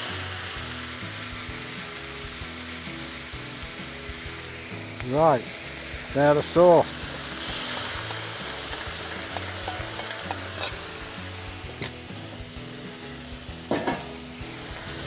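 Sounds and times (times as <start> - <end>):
vegetables sizzling in a wok: 0.0 - 15.0
metal spatula scraping wok: 7.0 - 12.7, 13.6 - 15.0.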